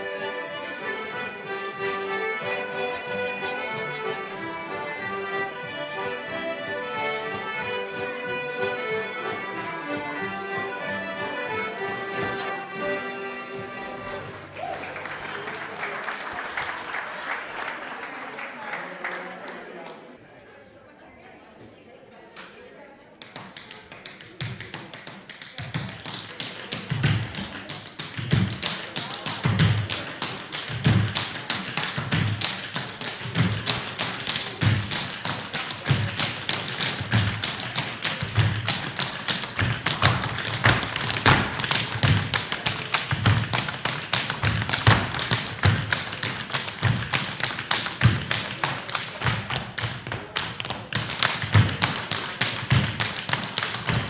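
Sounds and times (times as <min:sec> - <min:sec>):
tap shoes on wooden floor: 0:24.4 - 0:54.0
heavier foot stamps: 0:35.9 - 0:46.1.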